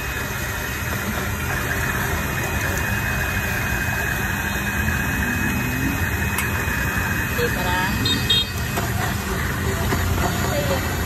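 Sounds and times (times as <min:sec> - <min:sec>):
car and motorbike engines idling: 0:00.0 - 0:11.0
street traffic hum: 0:00.0 - 0:11.0.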